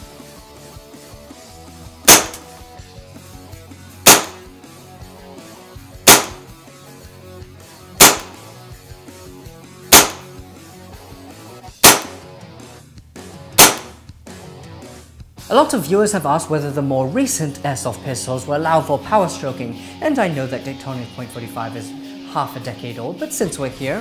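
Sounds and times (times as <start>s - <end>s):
airsoft pistol shots: 2.1s - 2.5s, 4.0s - 4.5s, 6.0s - 6.5s, 8.0s - 8.4s, 9.9s - 10.3s, 11.8s - 12.2s, 13.6s - 14.0s
pistol slide cycling: 2.1s - 2.5s, 4.1s - 4.4s, 6.1s - 6.4s, 8.0s - 8.4s, 9.9s - 10.3s, 11.8s - 12.2s, 13.6s - 13.9s.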